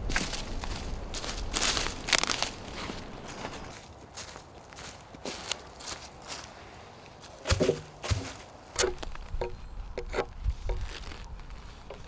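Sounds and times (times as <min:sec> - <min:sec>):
sharp wooden knocks: 0:07.5 - 0:10.8
knife cutting wood: 0:08.8 - 0:10.8.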